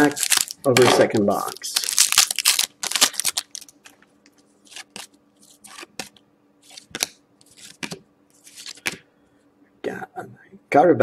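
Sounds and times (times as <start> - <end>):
trading cards flipped by hand: 4.7 - 9.0.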